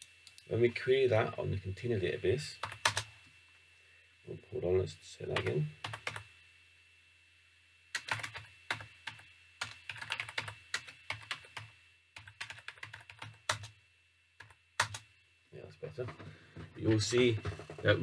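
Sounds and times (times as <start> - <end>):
keyboard typing: 2.6 - 3.1, 5.3 - 6.2, 8.0 - 13.7, 14.4 - 15.1.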